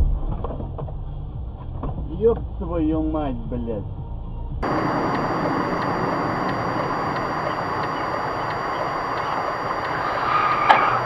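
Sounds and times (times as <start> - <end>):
car road and engine noise: 4.6 - 11.0.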